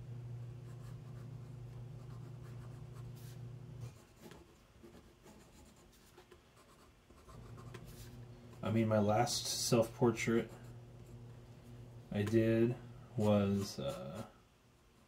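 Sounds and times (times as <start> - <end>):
steady low hum: 0.0 - 15.0
pen scratching on paper: 0.6 - 8.2.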